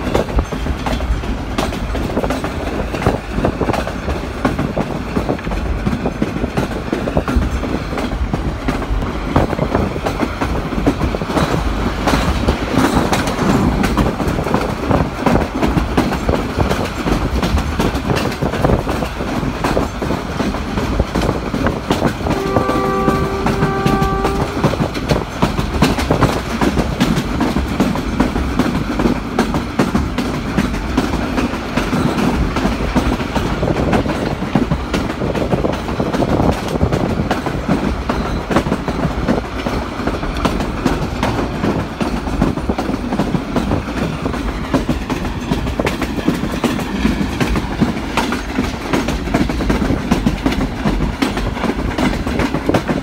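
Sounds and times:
train rumble and rattle: 0.0s - 53.0s
wheels clacking over rail joints: 0.0s - 53.0s
train horn: 22.2s - 25.0s.

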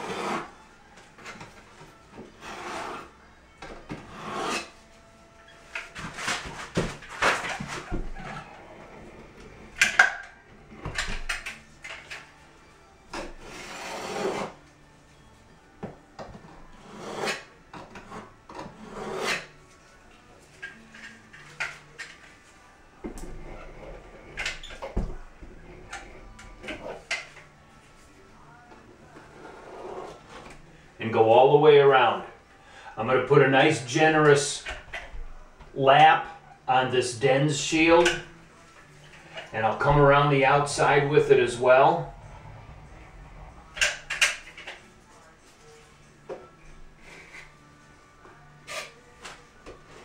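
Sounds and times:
putty knife scraping: 0.0s - 0.5s, 3.9s - 4.8s, 13.4s - 14.5s, 16.8s - 19.5s.

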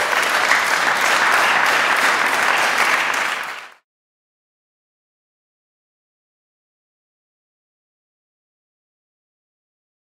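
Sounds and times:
congregation applauding: 0.0s - 3.8s.

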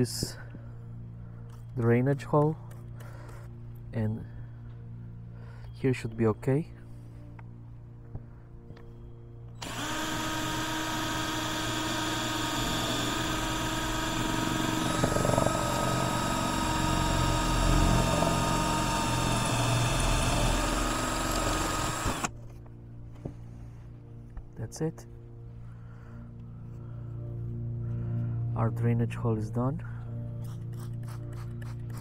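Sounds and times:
cordless drill boring through ceramic: 9.6s - 22.4s.

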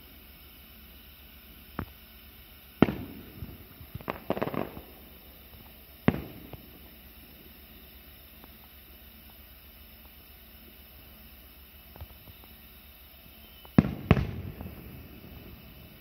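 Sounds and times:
small firework pops: 1.6s - 10.2s, 11.8s - 16.0s
firework shells bursting: 1.7s - 10.2s, 13.2s - 16.0s.

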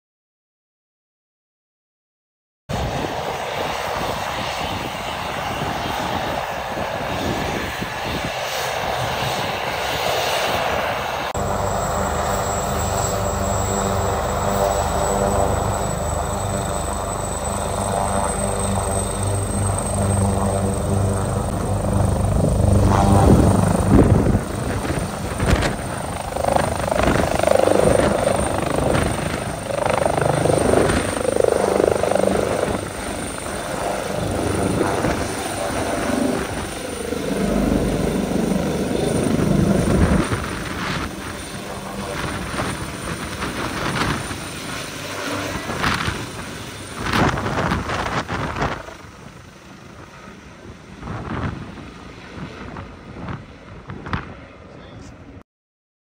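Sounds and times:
helicopter rotor throb: 2.8s - 55.4s
turbine whine: 2.8s - 55.4s.

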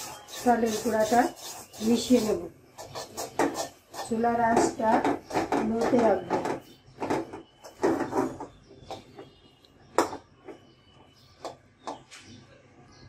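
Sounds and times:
spatula scraping steel pan: 0.0s - 9.2s.

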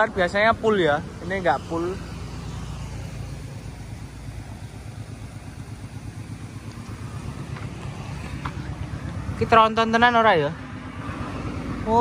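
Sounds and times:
diesel truck engine idling: 0.0s - 12.0s.

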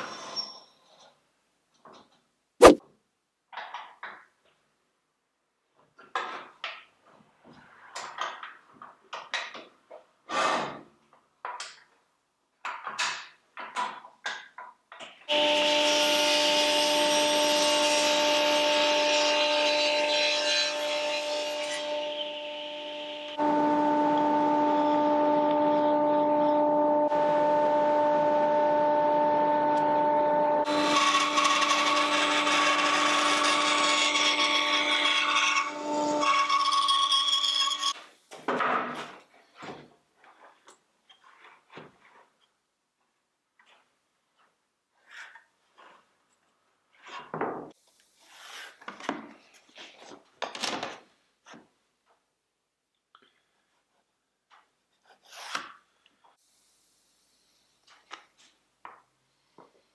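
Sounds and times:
table saw humming: 30.6s - 37.9s.

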